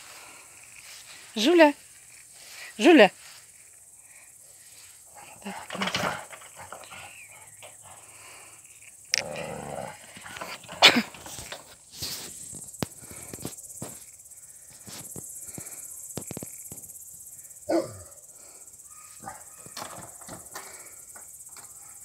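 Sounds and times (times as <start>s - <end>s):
dog barking: 17.7s - 18.2s, 18.9s - 20.1s, 21.8s - 22.0s.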